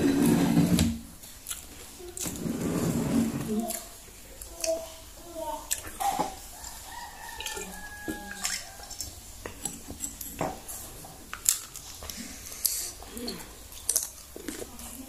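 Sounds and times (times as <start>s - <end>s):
moist chewing: 1.2s - 2.4s, 3.5s - 5.0s, 5.6s - 15.0s
mouth clicks and smacks: 5.6s - 6.3s.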